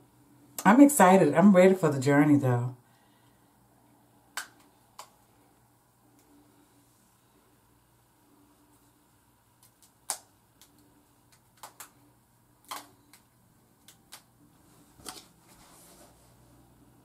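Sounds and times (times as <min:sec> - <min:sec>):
rubber bands snapping: 0:09.6 - 0:12.0, 0:12.6 - 0:14.3
faint rustle of hair: 0:14.4 - 0:16.8.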